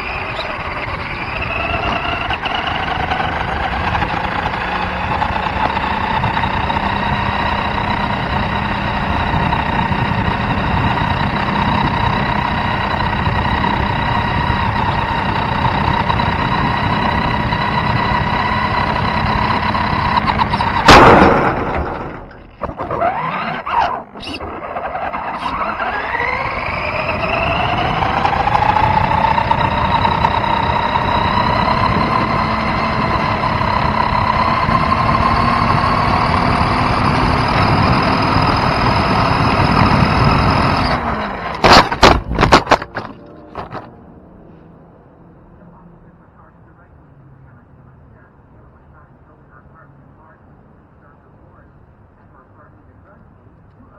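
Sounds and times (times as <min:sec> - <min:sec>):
small two-stroke engine running: 0:00.0 - 0:44.0
loud knock: 0:20.8 - 0:22.2.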